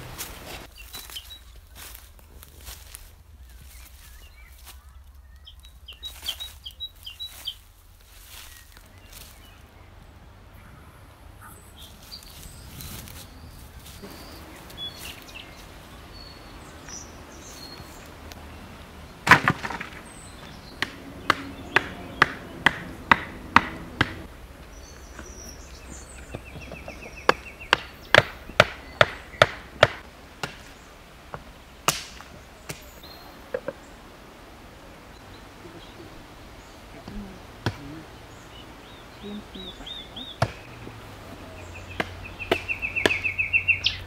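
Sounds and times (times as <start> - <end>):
heavy blade chopping: 20.8 - 24.3, 27.3 - 30.7.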